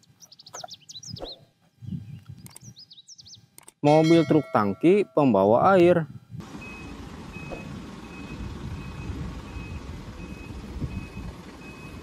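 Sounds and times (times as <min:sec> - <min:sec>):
low truck rumble: 0:06.4 - 0:12.0
truck reverse alarm beeping: 0:06.5 - 0:12.0.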